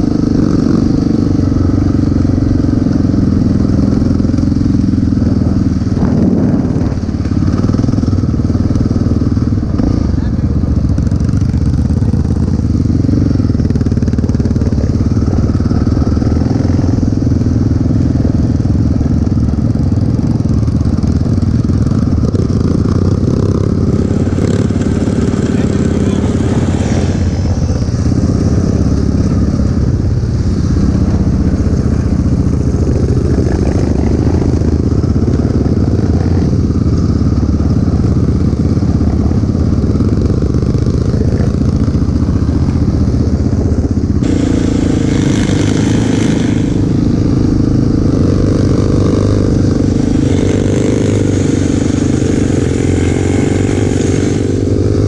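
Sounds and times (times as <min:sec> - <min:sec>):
dirt bike engines: 0:00.0 - 0:55.0
quad engine running: 0:00.0 - 0:55.0.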